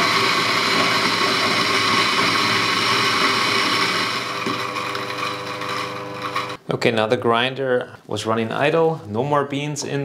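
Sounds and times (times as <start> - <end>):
coffee grinder running: 0.0 - 6.6.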